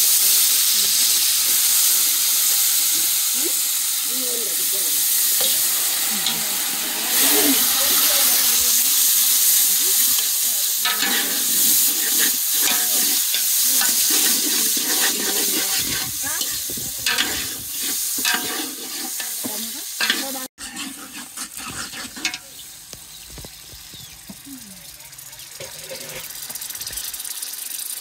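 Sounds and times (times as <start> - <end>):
food sizzling in hot oil: 0.0 - 28.0
spoon stirring and scraping pot: 10.0 - 22.6, 25.6 - 26.4.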